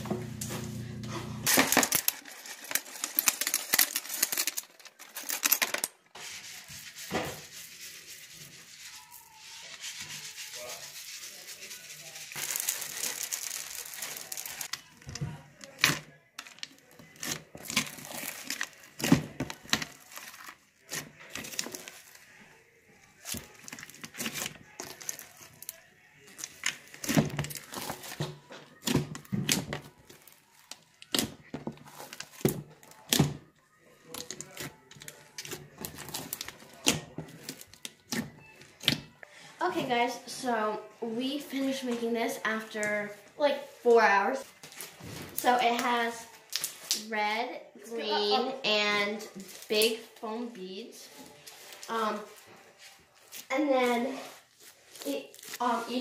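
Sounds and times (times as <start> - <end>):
foam beads crunching: 1.4 - 5.9, 8.7 - 14.9, 16.4 - 22.4.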